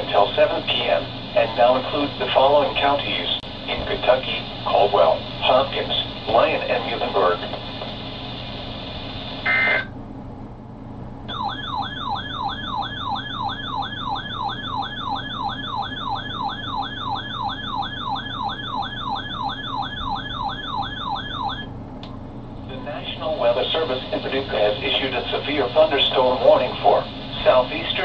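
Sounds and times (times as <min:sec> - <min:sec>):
electronic alert siren sweeping: 0:09.4 - 0:09.9, 0:11.3 - 0:21.7.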